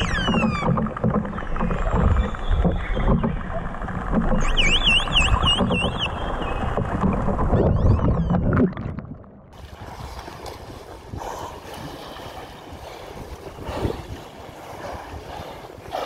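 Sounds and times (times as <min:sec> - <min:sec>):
rushing sea water: 0:00.0 - 0:16.0
lapping water: 0:09.6 - 0:16.0
wind on microphone: 0:09.6 - 0:16.0.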